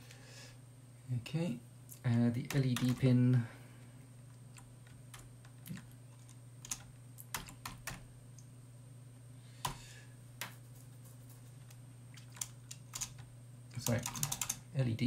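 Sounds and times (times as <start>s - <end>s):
faint low hum: 0.0s - 15.0s
computer keyboard keystrokes: 2.4s - 3.1s, 4.5s - 8.0s, 12.2s - 14.6s.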